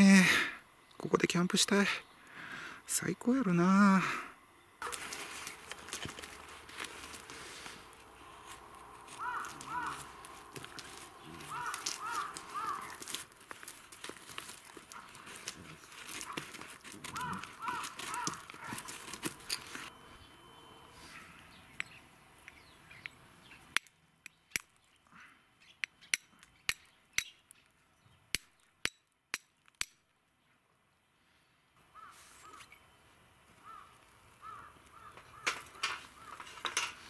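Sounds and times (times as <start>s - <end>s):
knife shaving wood: 4.8s - 19.9s
crows cawing: 7.1s - 19.9s, 31.9s - 32.7s, 33.6s - 37.0s.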